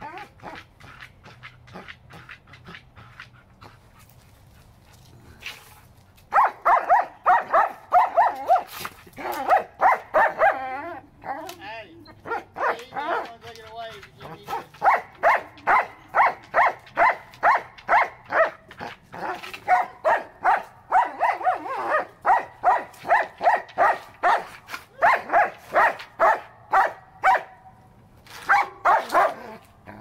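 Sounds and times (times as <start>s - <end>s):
dog barking: 6.3s - 8.7s, 9.4s - 10.6s, 12.2s - 13.3s, 14.5s - 18.6s, 19.7s - 27.6s, 28.5s - 29.6s.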